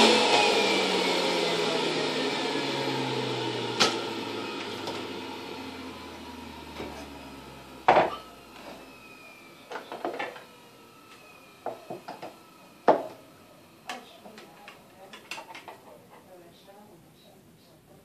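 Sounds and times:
juicer motor winding down: 0.0s - 15.0s
juicer parts clacking: 13.8s - 15.8s.

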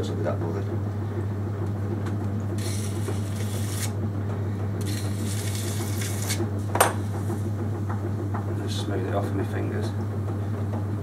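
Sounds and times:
potter's wheel humming: 0.0s - 11.0s
fingers rubbing clay: 2.6s - 4.0s, 4.8s - 6.4s.

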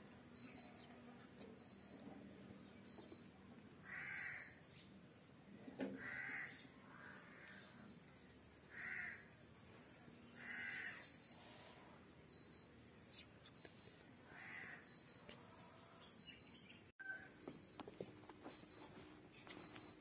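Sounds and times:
crow cawing: 3.8s - 4.6s, 5.9s - 7.6s, 8.7s - 9.3s, 10.4s - 11.1s, 14.3s - 14.9s.

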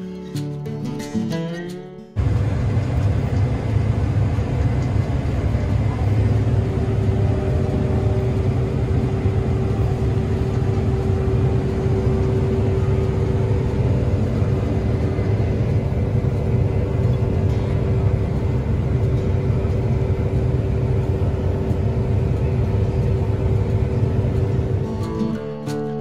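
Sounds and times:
faint steady whine: 2.2s - 25.8s
combine harvester drone: 2.2s - 26.0s.

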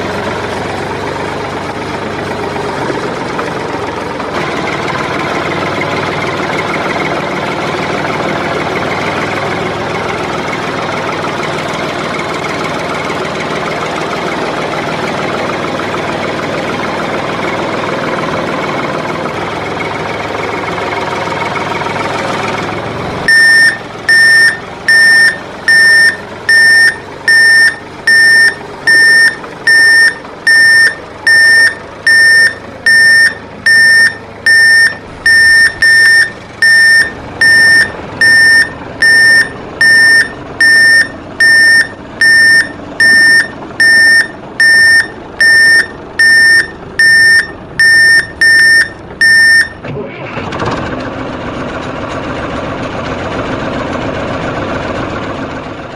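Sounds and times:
engine running: 0.0s - 55.9s
electronic reversing beeper: 23.3s - 49.8s.

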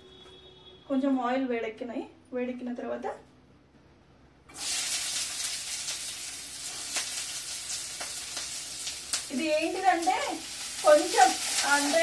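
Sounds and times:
oil sizzling in a frying pan: 4.5s - 12.0s.

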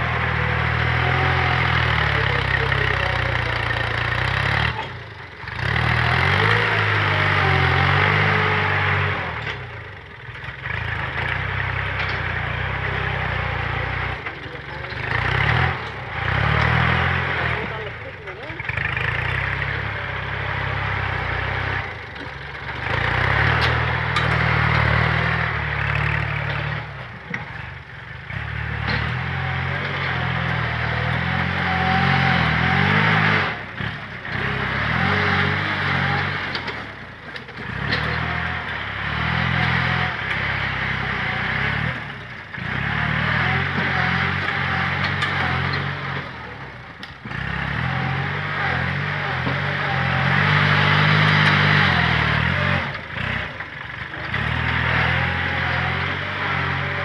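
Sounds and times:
tractor diesel engine under load: 0.0s - 57.0s.

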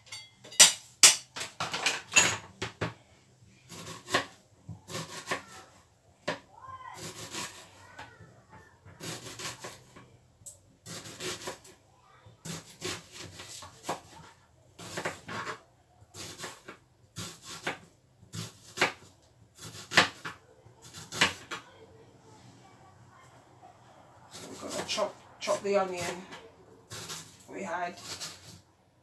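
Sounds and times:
knife cutting onion on board: 3.7s - 6.4s, 7.0s - 8.2s, 8.8s - 10.0s, 10.8s - 11.8s, 12.4s - 21.6s, 24.3s - 28.6s.

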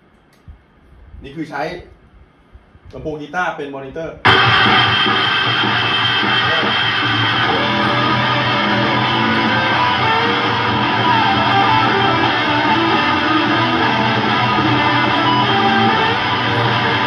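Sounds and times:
backing track: 4.3s - 17.0s
electric guitar rock riff: 4.3s - 17.0s.

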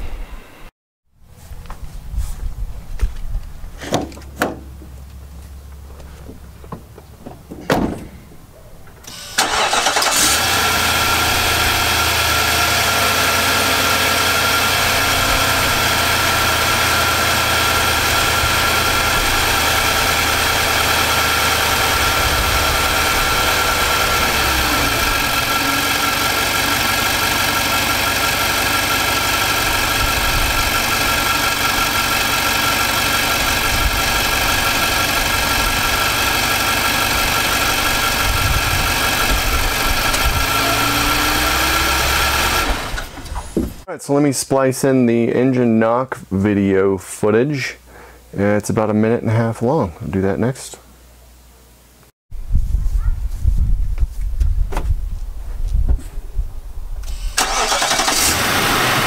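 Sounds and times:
car engine cranking and idling: 3.4s - 43.9s, 57.0s - 59.0s.

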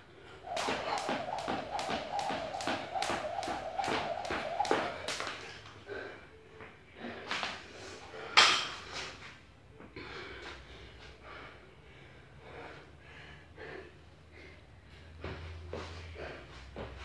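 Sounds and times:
person breathing hard: 5.4s - 8.4s, 10.0s - 16.7s.

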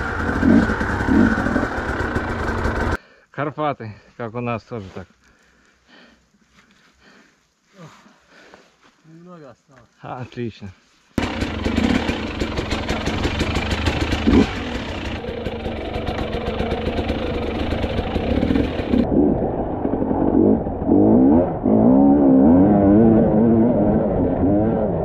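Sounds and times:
motorcycle engine revving: 0.0s - 3.0s, 11.2s - 25.0s.

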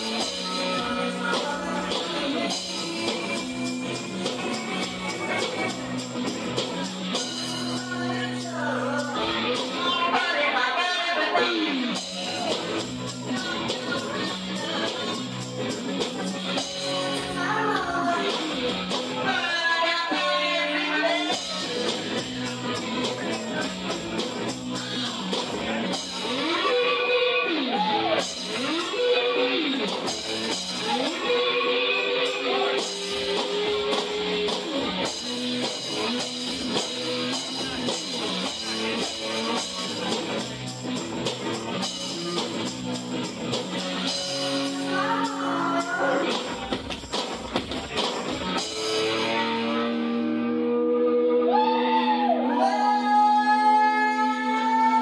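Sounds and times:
guitar playing: 0.0s - 52.8s
man singing into microphone: 7.6s - 12.0s, 19.2s - 21.8s.

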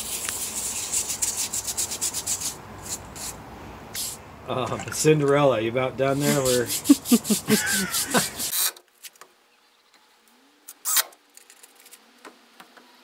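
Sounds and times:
brush scrubbing wet stone: 0.0s - 3.4s, 6.1s - 8.6s
person speaking: 4.5s - 8.5s.

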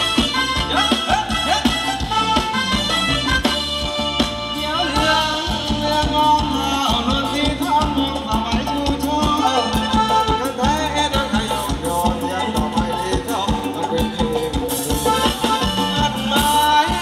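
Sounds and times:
loud dance music with drum beat: 0.0s - 8.0s.

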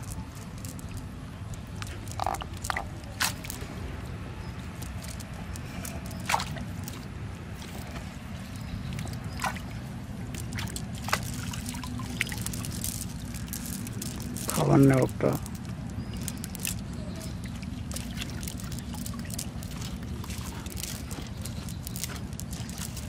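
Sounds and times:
water dripping and sloshing: 0.0s - 3.7s, 4.6s - 23.0s
low background rumble: 0.0s - 23.0s
short splashes: 6.2s - 6.7s.

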